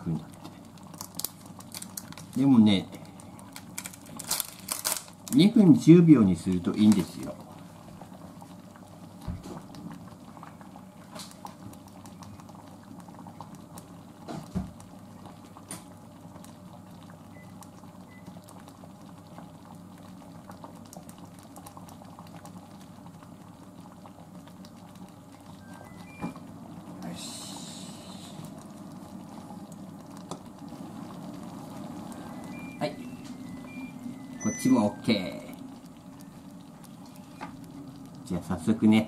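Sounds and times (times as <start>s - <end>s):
thick sauce bubbling in a pot: 0.0s - 39.0s.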